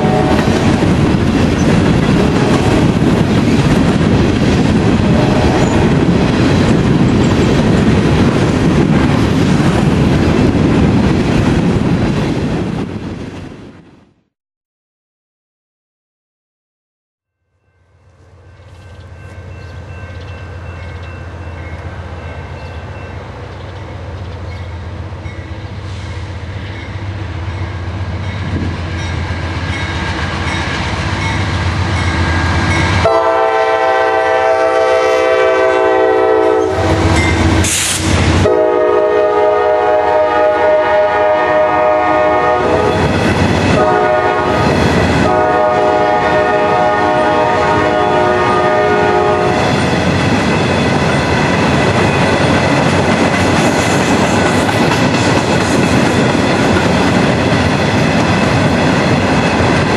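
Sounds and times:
locomotive air horn blowing: 0.0 - 0.7, 5.0 - 6.0, 32.4 - 43.1, 43.7 - 49.7
diesel locomotive engines rumbling: 0.0 - 13.8, 17.6 - 59.9
wheels clattering on rails: 49.7 - 59.9.

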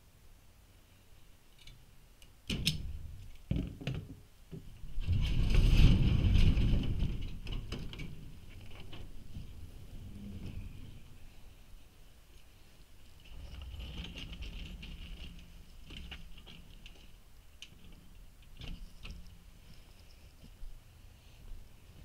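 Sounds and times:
garage door rolling up tracks: 4.9 - 11.0.

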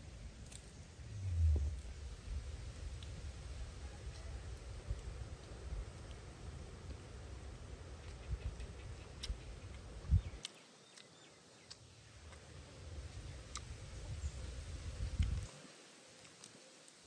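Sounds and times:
low rumble: 0.0 - 7.7.

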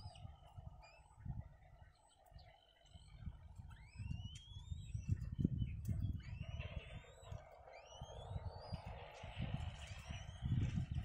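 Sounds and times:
kites giving rising whistled calls: 2.7 - 11.0.

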